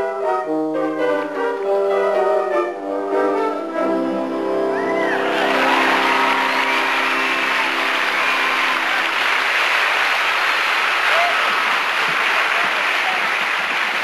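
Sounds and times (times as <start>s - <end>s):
crowd cheering: 4.7s - 14.0s
crowd applauding: 4.8s - 14.0s.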